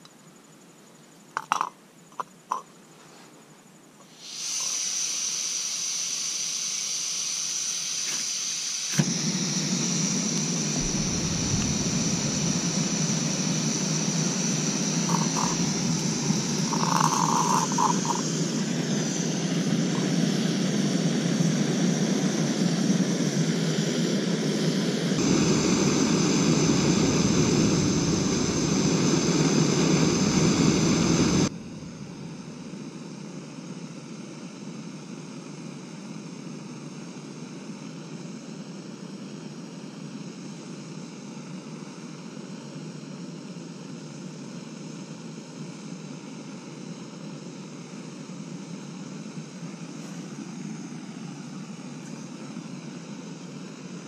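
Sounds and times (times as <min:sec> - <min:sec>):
gas hissing: 0:04.1 - 0:33.3
stove burning with rushing sound: 0:04.2 - 0:33.2.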